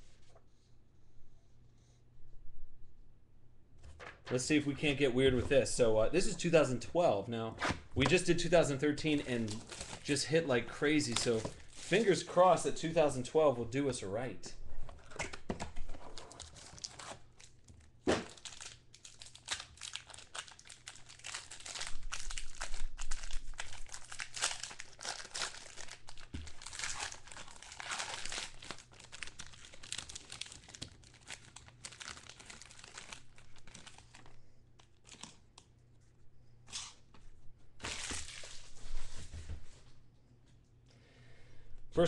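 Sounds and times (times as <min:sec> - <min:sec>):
foil wrapper crackling and tearing: 0:16.2 - 0:35.6.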